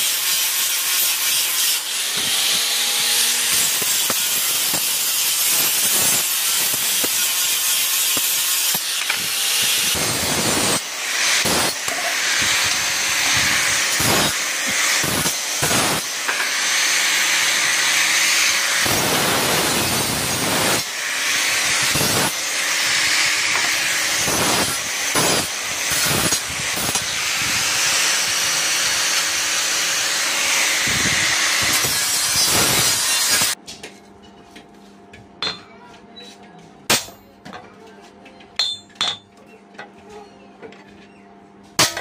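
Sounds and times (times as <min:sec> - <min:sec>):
angle grinder grinding metal: 0:00.0 - 0:33.6.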